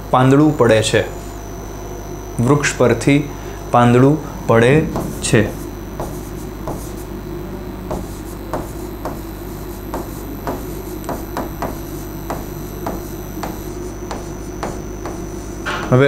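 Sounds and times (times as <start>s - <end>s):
steady electrical hum: 0.0s - 16.0s
pen tapping on display screen: 7.9s - 9.2s, 9.9s - 15.3s.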